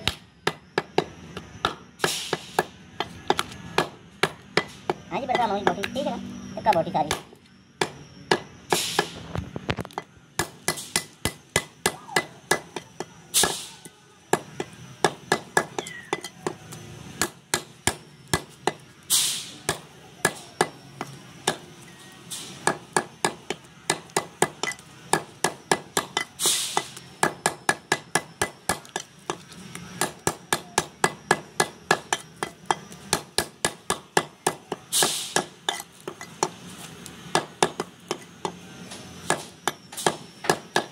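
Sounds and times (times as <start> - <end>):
cleaver chopping meat on wood: 2.6 - 6.0.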